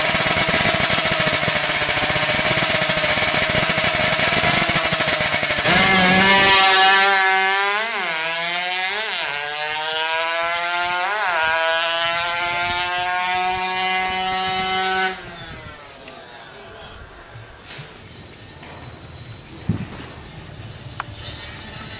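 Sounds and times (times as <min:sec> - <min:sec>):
two-stroke motorcycle engine revving: 0:00.0 - 0:16.0.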